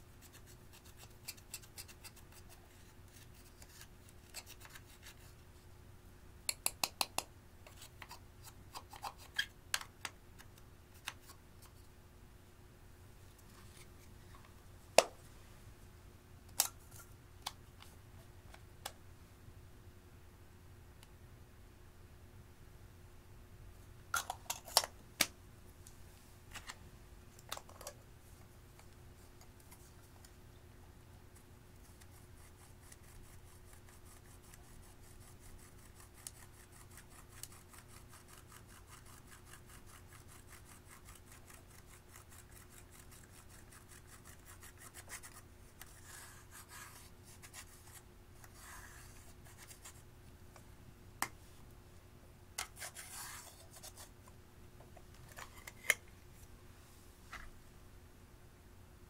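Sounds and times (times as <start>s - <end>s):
brush scratching pressed powder: 0.0s - 5.4s, 31.3s - 50.1s, 52.7s - 54.2s.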